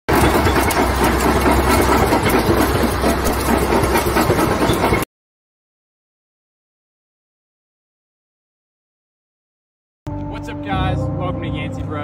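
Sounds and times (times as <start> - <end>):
bulldozer engine drone: 0.1 - 5.0
steel tracks clanking: 0.1 - 5.1.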